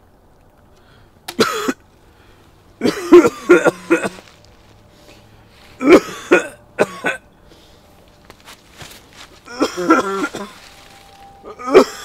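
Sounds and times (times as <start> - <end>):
man coughing and choking: 1.4 - 1.8, 2.8 - 4.2, 5.8 - 7.2, 9.5 - 10.6, 11.5 - 12.0.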